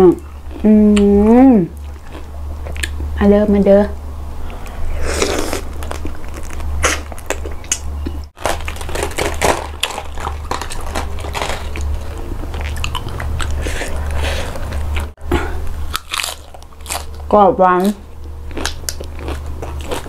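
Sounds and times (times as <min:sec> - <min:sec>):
steady low hum: 0:00.0 - 0:20.0
chewing shrimp: 0:04.5 - 0:15.2, 0:15.9 - 0:20.0
lettuce leaves crunching and snapping: 0:08.4 - 0:13.5, 0:15.9 - 0:20.0.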